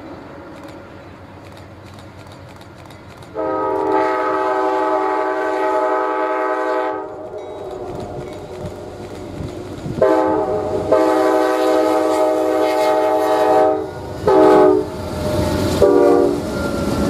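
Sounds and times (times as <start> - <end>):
faint train rumble: 0.0 - 17.0
locomotive air horn blast: 3.3 - 7.2, 10.0 - 16.5.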